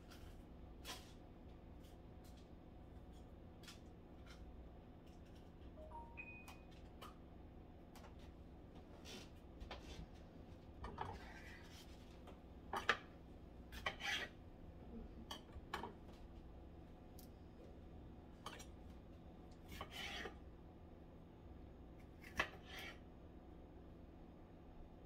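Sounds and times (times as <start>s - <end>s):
knife cutting on cutting board: 13.7s - 14.4s, 19.7s - 20.4s, 22.2s - 23.0s.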